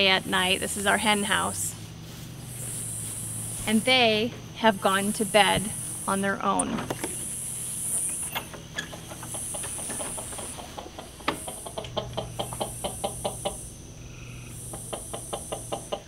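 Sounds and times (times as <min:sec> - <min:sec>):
high insect chorus: 0:00.0 - 0:16.0
chickens clucking: 0:07.8 - 0:13.9, 0:14.6 - 0:16.0
door unlatched and opened: 0:08.1 - 0:10.1.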